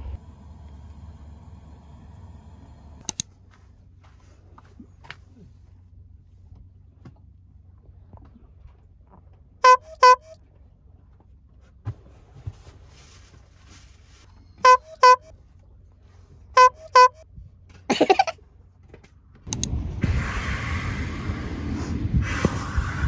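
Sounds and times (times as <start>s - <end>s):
car horn beeps: 9.6s - 10.4s, 14.6s - 15.3s, 16.6s - 17.2s.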